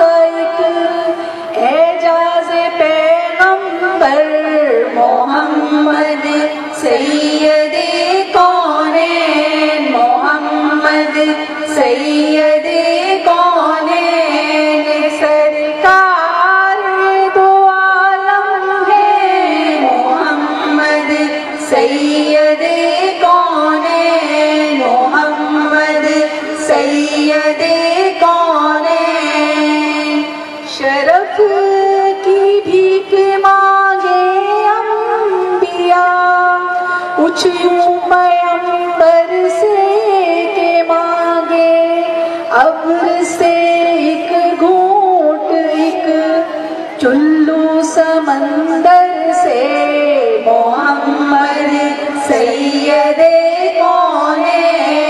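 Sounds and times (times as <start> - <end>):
women singing: 0.0 - 55.0.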